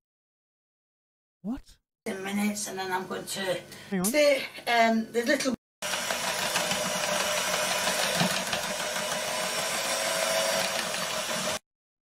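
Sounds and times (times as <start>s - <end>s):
electric hand mixer whisking batter: 5.8s - 11.6s.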